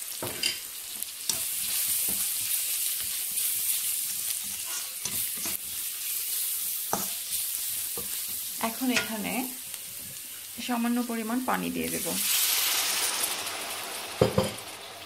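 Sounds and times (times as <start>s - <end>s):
food sizzling in oil: 0.0s - 15.0s
spatula scraping pan: 0.2s - 10.5s.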